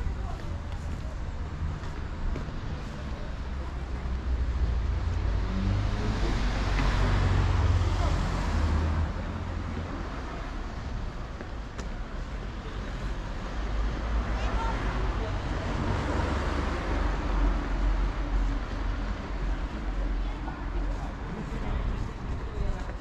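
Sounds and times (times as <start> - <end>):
steady traffic noise: 0.0 - 23.0
vehicle passing by: 4.8 - 9.8.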